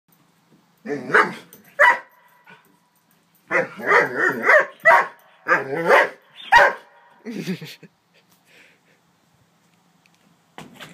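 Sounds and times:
dog barking: 1.0s - 2.1s, 3.5s - 7.1s.

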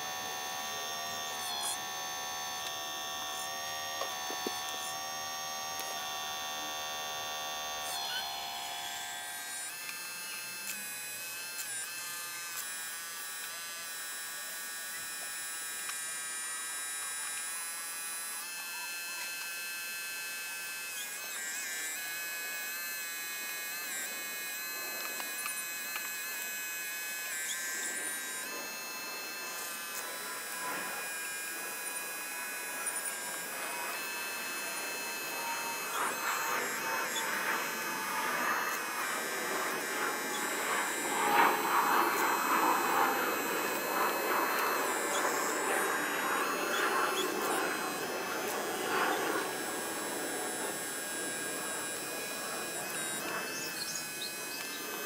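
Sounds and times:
hydraulic pump motor whining: 0.0s - 55.0s.

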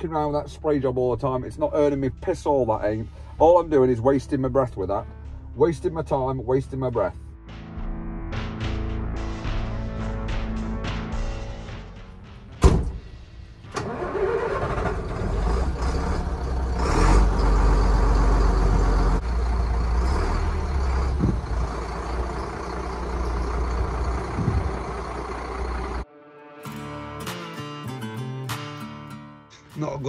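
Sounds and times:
diesel lorry engine running: 8.7s - 26.1s
lorry door slamming: 12.5s - 13.2s.

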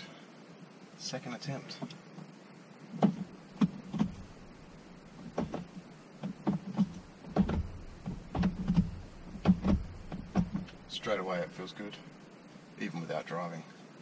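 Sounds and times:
gear lever clicks and clunks: 3.0s - 4.5s, 5.2s - 10.8s.

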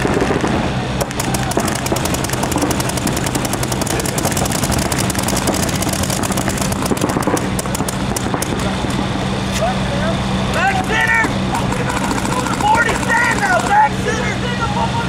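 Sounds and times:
paintball markers firing rapidly: 0.0s - 9.0s, 11.6s - 13.9s.

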